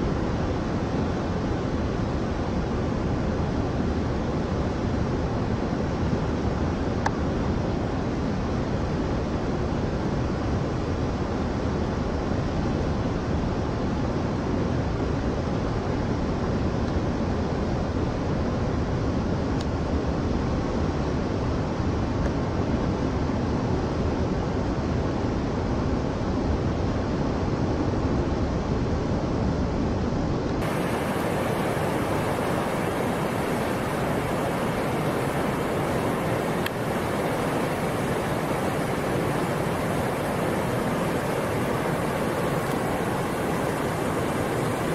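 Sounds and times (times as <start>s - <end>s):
whitewater rapids rushing: 30.6s - 44.9s.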